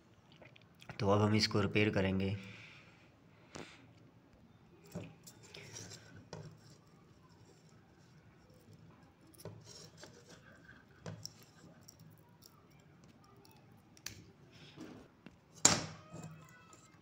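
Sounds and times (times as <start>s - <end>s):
metal tweezers clicking and scraping: 4.8s - 14.3s, 15.5s - 17.0s.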